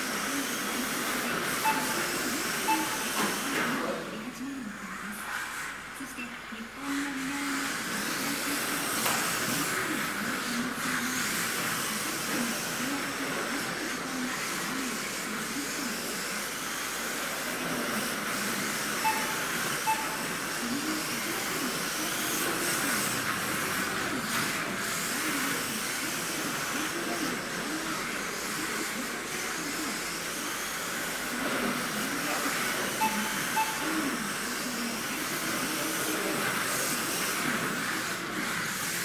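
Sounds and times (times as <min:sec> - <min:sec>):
rc car electric motors whining: 0:00.0 - 0:04.2, 0:06.9 - 0:39.0
steady hiss of cars: 0:00.0 - 0:39.0
short beeps: 0:01.6 - 0:03.3, 0:19.0 - 0:20.4, 0:33.0 - 0:34.2.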